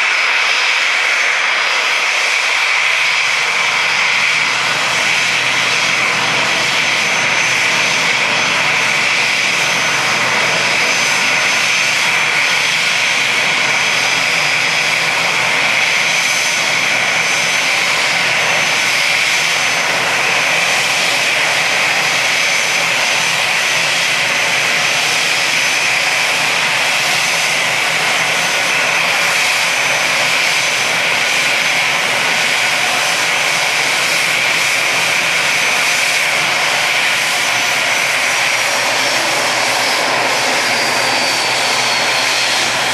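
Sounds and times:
jet engines whining: 0.0 - 42.9.

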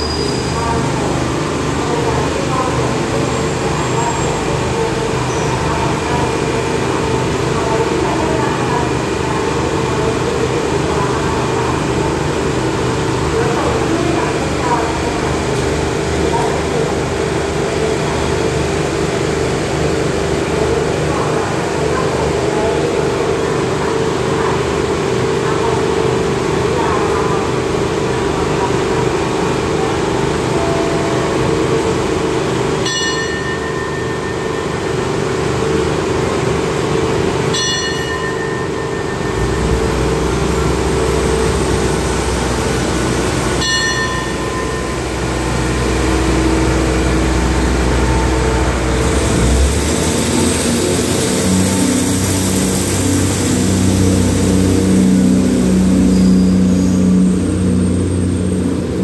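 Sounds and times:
diesel train engines idling: 0.0 - 59.0
deep low rumble: 39.2 - 59.0
short ringing tones: 42.7 - 49.2.

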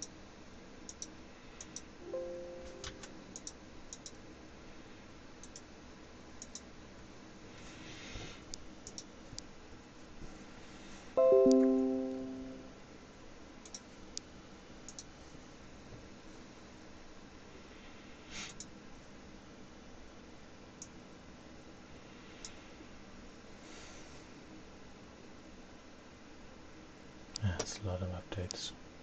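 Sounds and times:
bell-like notes ringing chord: 2.0 - 3.2, 11.2 - 12.8
faint clicks: 6.4 - 6.7, 14.9 - 15.1.

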